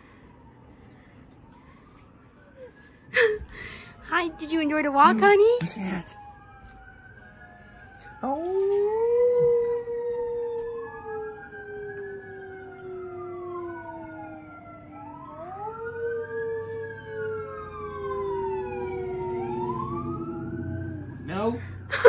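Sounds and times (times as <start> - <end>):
siren wailing: 0.0 - 22.0.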